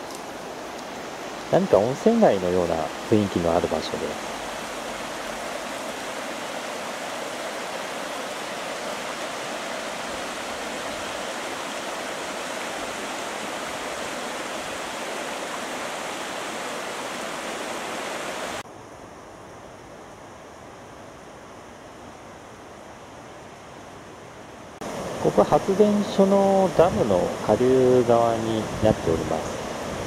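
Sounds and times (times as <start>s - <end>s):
river water rushing over stones: 0.0s - 18.6s, 24.8s - 30.0s
faint steady hiss: 0.0s - 30.0s.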